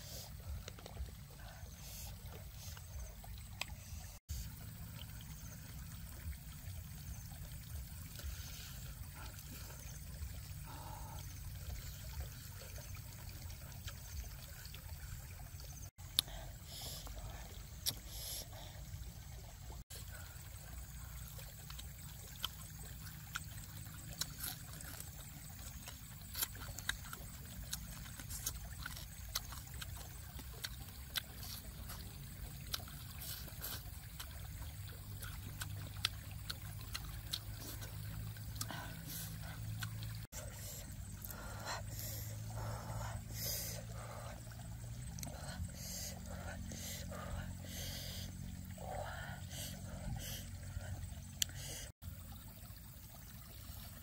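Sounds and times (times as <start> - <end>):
running creek water: 0.0 - 54.0
chewing and lip smacks: 17.8 - 18.1, 21.3 - 40.3.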